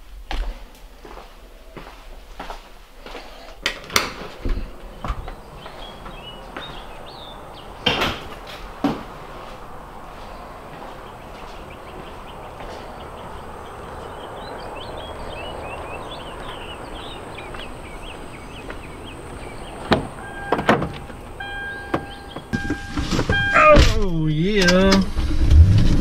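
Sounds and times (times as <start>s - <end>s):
small birds chirping: 4.4s - 22.8s
door-open chime beeps: 20.2s - 23.8s.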